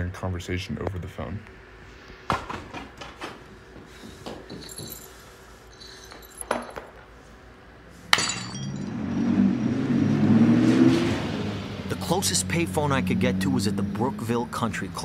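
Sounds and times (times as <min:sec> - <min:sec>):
light clinks and knocks: 0:04.3 - 0:07.1
car engine rumbling: 0:08.5 - 0:15.0.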